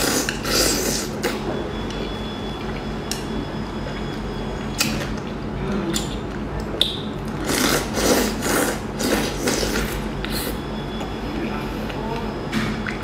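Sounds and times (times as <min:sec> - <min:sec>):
slurping and sucking: 0:07.4 - 0:10.6.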